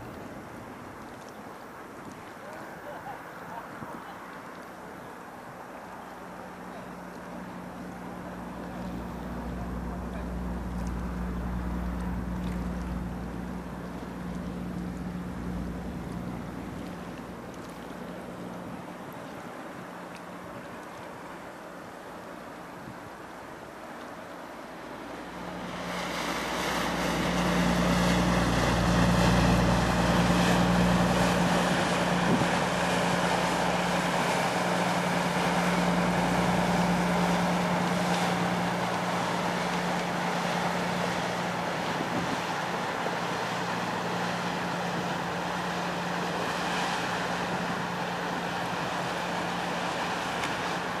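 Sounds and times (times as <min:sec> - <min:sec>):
engine humming: 0:06.4 - 0:19.1, 0:24.7 - 0:51.0.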